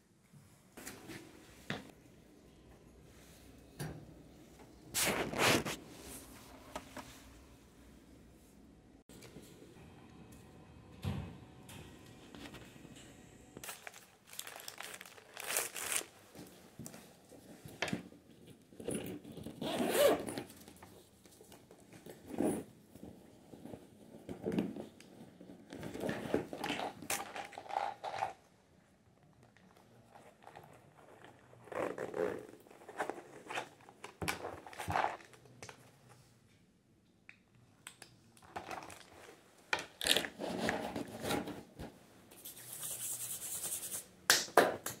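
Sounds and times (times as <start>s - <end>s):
rummaging through handbag: 13.6s - 28.4s, 30.0s - 36.0s, 38.4s - 39.4s.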